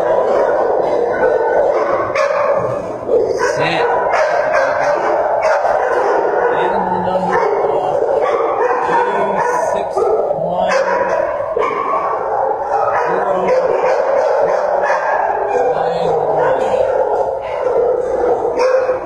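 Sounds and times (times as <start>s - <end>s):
dogs barking: 0.0s - 19.0s.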